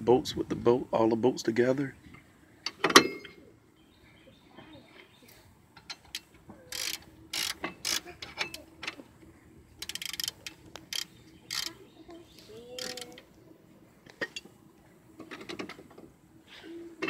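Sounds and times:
socket ratchet clicking: 0:06.1 - 0:08.0, 0:09.8 - 0:11.7, 0:12.8 - 0:13.2.

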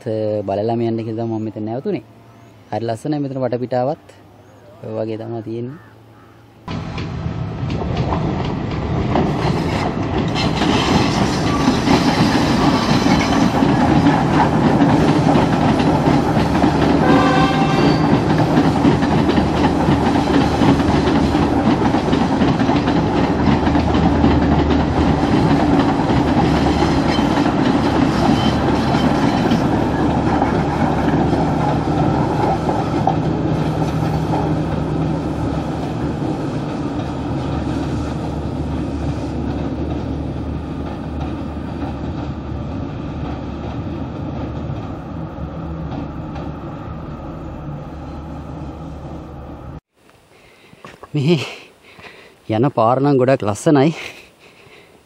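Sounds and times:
diesel train engine humming: 0:00.0 - 0:50.3
train wheels rattling over rails: 0:06.7 - 0:46.8
train horn blast: 0:17.0 - 0:18.1.

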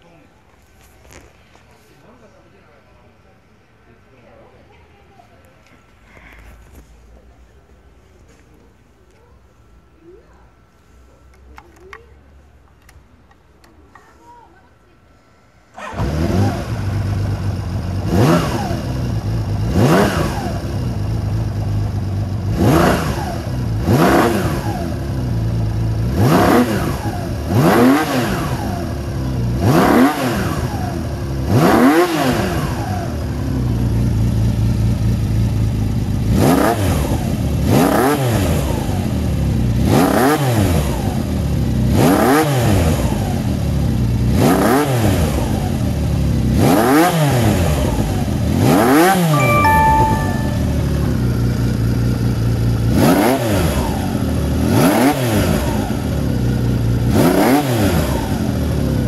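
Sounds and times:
motorcycle engine starting and revving: 0:15.7 - 0:59.0.

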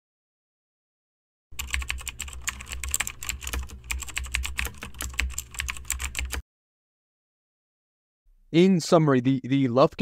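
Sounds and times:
fast keyboard typing: 0:01.5 - 0:06.4.

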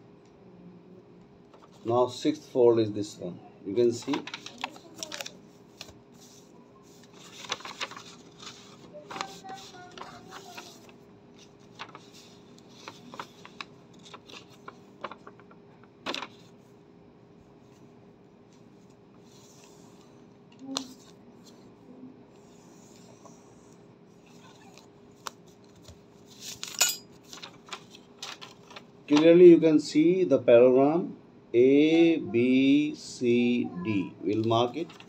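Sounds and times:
faint steady hum: 0:00.0 - 0:35.0
paper crinkling and rustling: 0:03.9 - 0:16.6, 0:24.3 - 0:29.4, 0:34.4 - 0:35.0.

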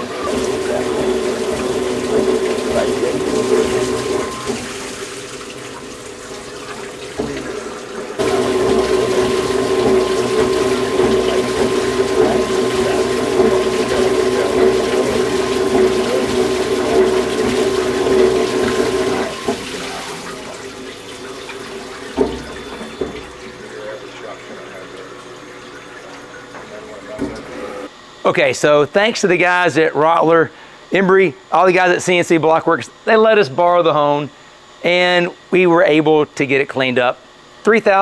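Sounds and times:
honing machine humming: 0:00.0 - 0:27.9
fluid pouring and splashing: 0:00.1 - 0:27.5.

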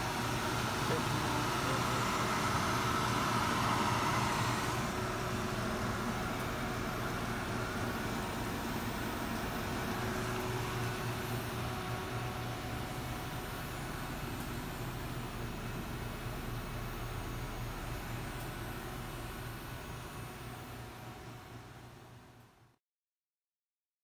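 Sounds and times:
fan-like hiss: 0:00.0 - 0:22.4
label press machine hum: 0:00.0 - 0:22.7.

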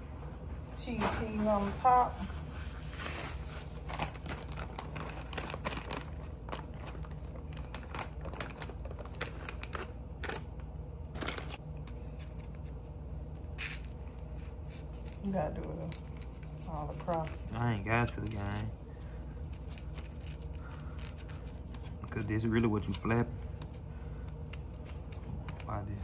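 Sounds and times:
steady low hum: 0:00.0 - 0:26.0
cheese sprinkling clicks and rustles: 0:02.9 - 0:23.7.

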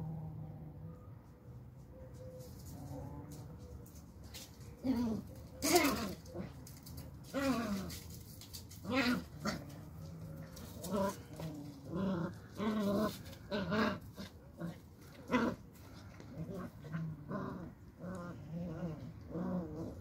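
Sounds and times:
puppies play-growling: 0:04.3 - 0:20.0.

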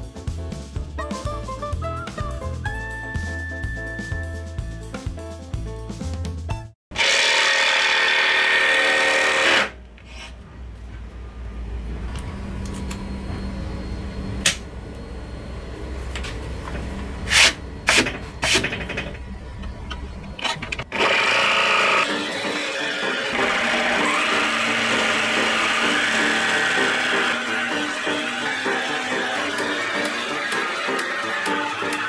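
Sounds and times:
drill boring into plywood: 0:07.0 - 0:10.2, 0:20.9 - 0:32.0.

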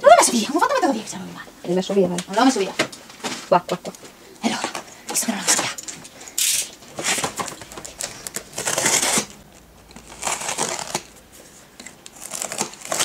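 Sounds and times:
packing tape ripping: 0:06.4 - 0:11.2, 0:11.8 - 0:13.0.

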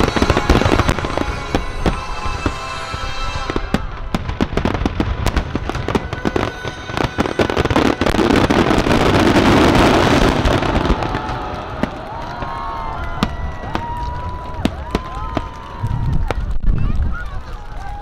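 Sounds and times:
music: 0:00.0 - 0:04.7
fireworks bangs and crackles: 0:00.0 - 0:18.0.

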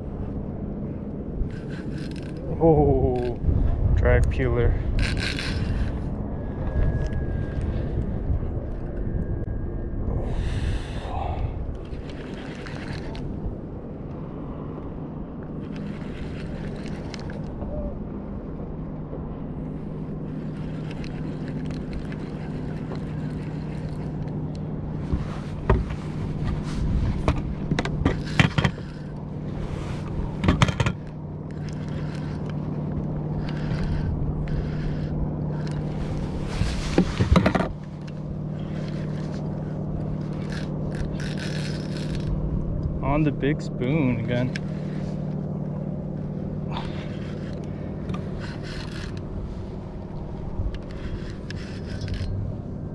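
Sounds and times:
boat motor humming: 0:00.0 - 0:04.0, 0:04.8 - 0:52.9
sharp knocks and rattles: 0:27.2 - 0:29.1.

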